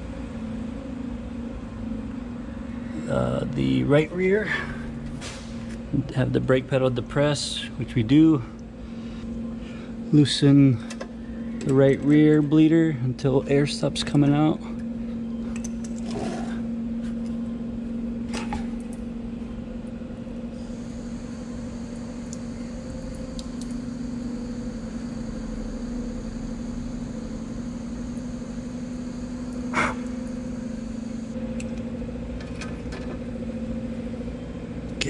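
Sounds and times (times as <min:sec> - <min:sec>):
brake pump motor humming: 0:00.0 - 0:35.0
faint high whine: 0:20.5 - 0:31.4.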